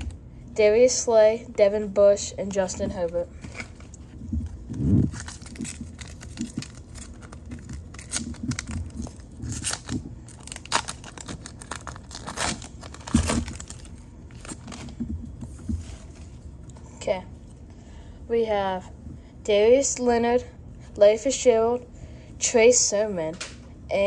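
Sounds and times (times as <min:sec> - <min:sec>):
foil wrapper crinkling: 0:03.4 - 0:15.1.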